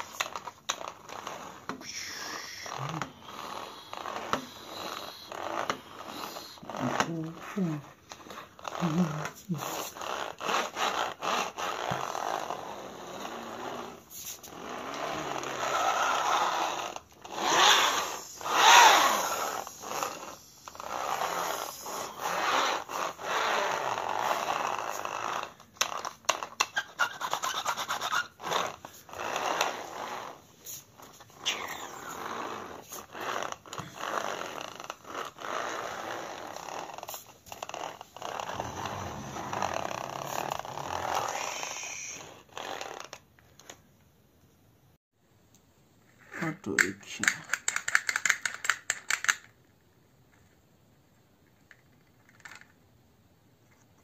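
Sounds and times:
toy car scraping on concrete: 0.0 - 7.5, 8.1 - 43.8.

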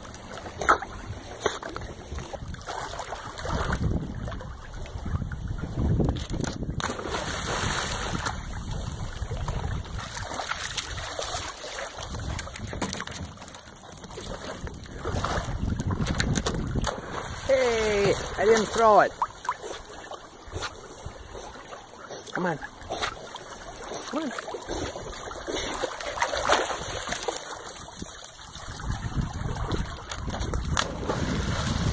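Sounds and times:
water splashing and dripping: 0.0 - 31.9
wind rumble on microphone: 1.0 - 11.2, 12.0 - 18.4, 27.8 - 31.9
dog splashing in water: 6.8 - 8.8, 23.0 - 27.9.

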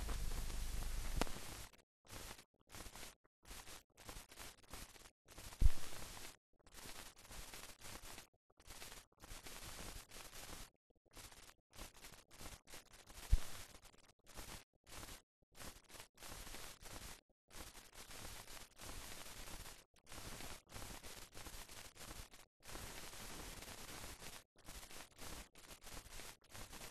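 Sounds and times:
static hiss: 0.0 - 1.6.

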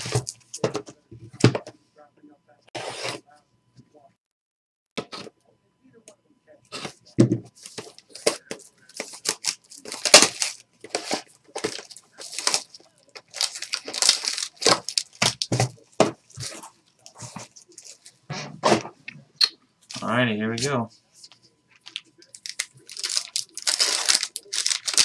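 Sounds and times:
plastic wrapping tearing and crinkling: 8.0 - 18.2, 21.8 - 25.0.

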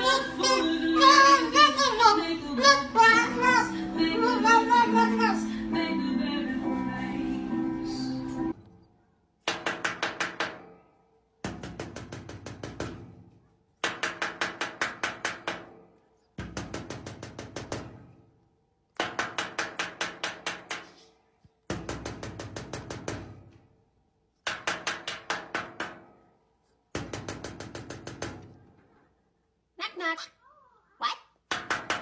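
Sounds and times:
rapid knocking: 11.4 - 15.8, 16.4 - 18.2, 21.7 - 23.5, 26.9 - 28.6.

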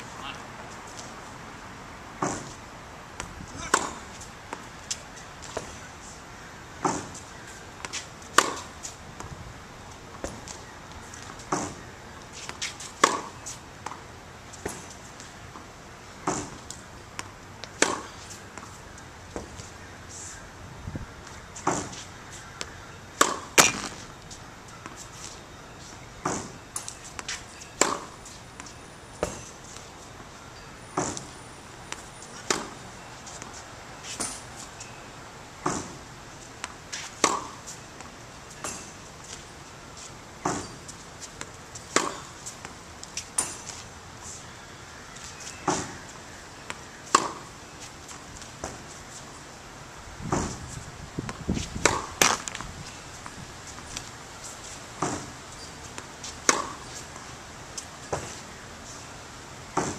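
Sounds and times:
racket hitting ball: 3.2 - 4.1, 7.8 - 8.7, 12.6 - 13.4, 17.7 - 18.7, 21.6 - 22.0, 22.6 - 24.0, 26.2 - 28.2, 31.9 - 32.8, 36.6 - 37.6, 40.4 - 40.8, 41.4 - 42.5, 46.7 - 47.6, 51.3 - 52.6, 55.0 - 55.3, 56.0 - 56.9
tennis balls bouncing on hard court: 3.2 - 5.7, 7.8 - 9.3, 12.5 - 14.0, 16.2 - 18.7, 22.6 - 24.0, 26.2 - 29.8, 36.6 - 38.9, 40.4 - 43.8, 46.7 - 47.6, 51.2 - 54.1, 55.0 - 57.0.

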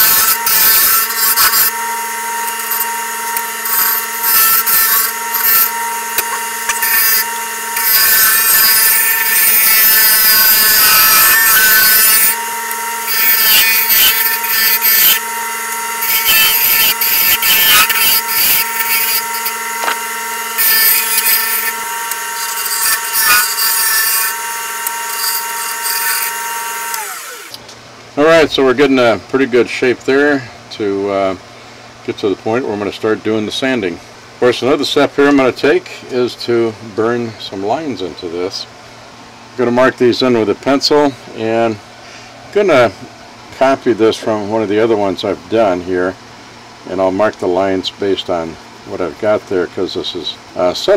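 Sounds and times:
turning tool shaving wood: 0.0 - 27.6
wood lathe motor whine: 0.0 - 27.6.

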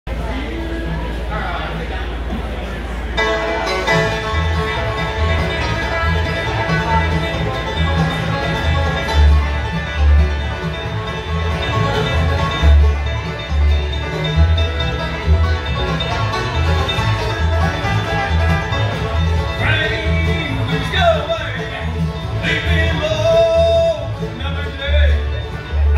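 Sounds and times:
bluegrass band playing: 0.1 - 25.9
upright bass plucking low notes: 0.1 - 25.9.

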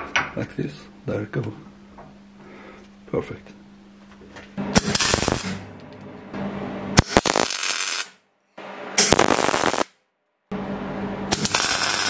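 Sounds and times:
welding arc crackle: 4.8 - 5.6, 7.0 - 8.2, 9.0 - 10.0, 11.3 - 12.0.

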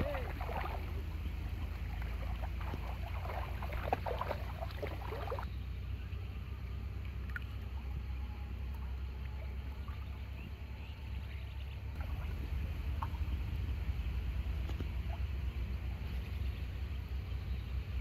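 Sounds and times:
splashing in shallow water: 0.0 - 5.5, 11.9 - 16.5.

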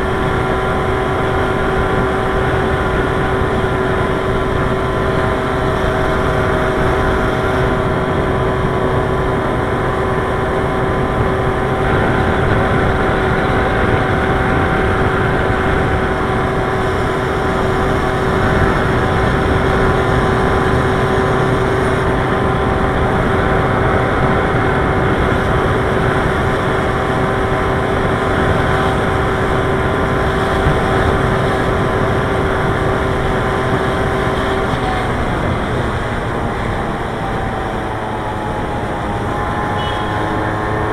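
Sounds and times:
whining tones: 0.0 - 40.9.

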